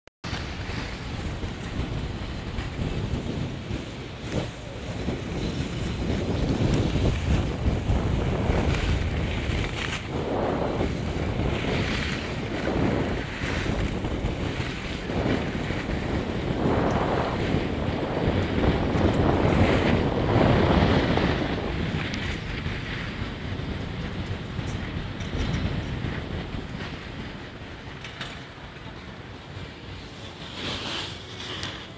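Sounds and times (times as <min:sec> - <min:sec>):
wind buffeting microphone: 0:00.2 - 0:31.9
board edges scraping snow: 0:00.3 - 0:23.4, 0:30.0 - 0:31.9.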